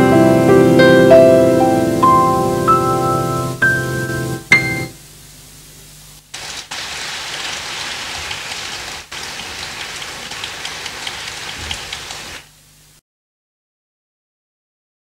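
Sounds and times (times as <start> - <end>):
piano notes: 0.0 - 5.1
audience applause: 6.4 - 12.4.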